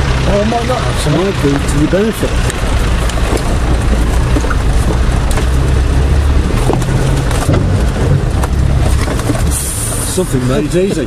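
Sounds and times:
engine droning at low revs: 0:00.0 - 0:11.0
body knocks and rattles: 0:02.3 - 0:10.2.

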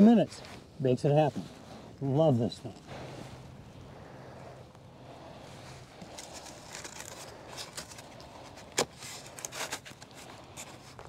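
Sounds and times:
faint ticks and handling noise: 0:04.6 - 0:11.0.

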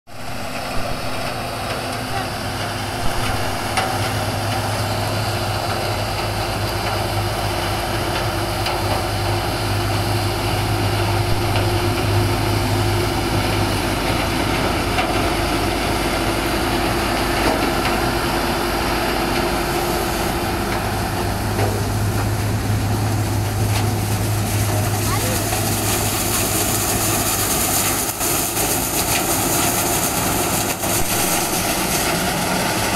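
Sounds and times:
sugarcane harvester machinery drone: 0:00.1 - 0:32.9
tractor engine running: 0:00.1 - 0:32.9.

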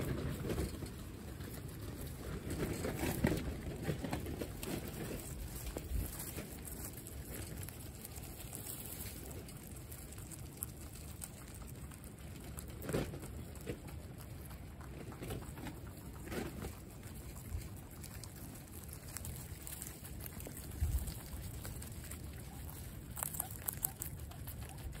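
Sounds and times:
wind rumble on microphone: 0:00.0 - 0:07.7, 0:20.3 - 0:21.8
guinea pigs munching greens: 0:00.0 - 0:25.0.

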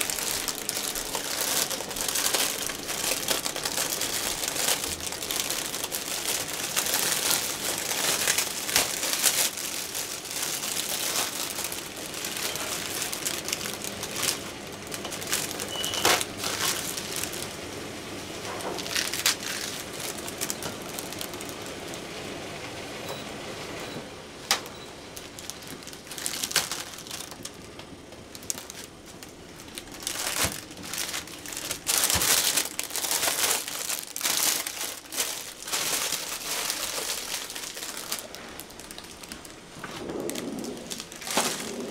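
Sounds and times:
plastic bag crinkling: 0:00.0 - 0:17.8, 0:18.4 - 0:22.1, 0:25.0 - 0:41.9
lettuce leaves tearing: 0:18.7 - 0:21.4.

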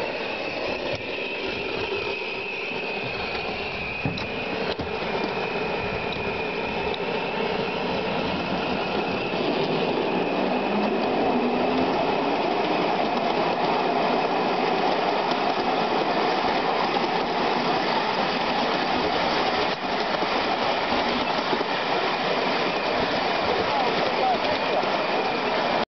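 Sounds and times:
faint train whine: 0:00.0 - 0:25.8
train wheels rumbling on rail: 0:00.0 - 0:25.8.

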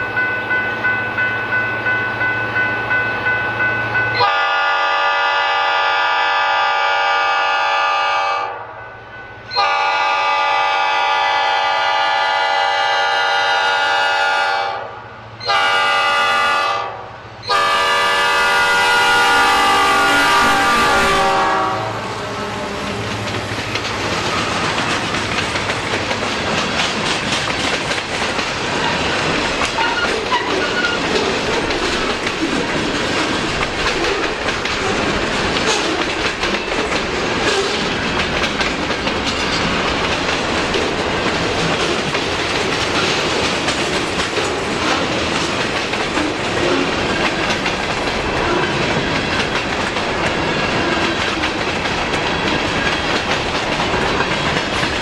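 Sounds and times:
locomotive air horn blasts: 0:04.2 - 0:08.7, 0:09.5 - 0:23.0
train wheels clacking on rails: 0:22.7 - 0:55.0.

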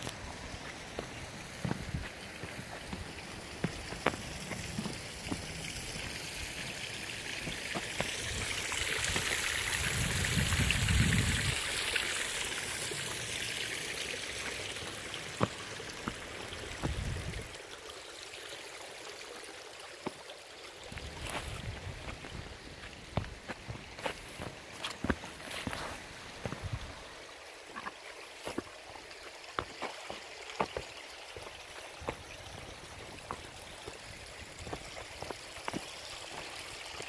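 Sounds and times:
boot footsteps on path: 0:00.0 - 0:09.4, 0:14.4 - 0:17.5, 0:20.9 - 0:37.0
stream water rushing: 0:00.0 - 0:37.0.

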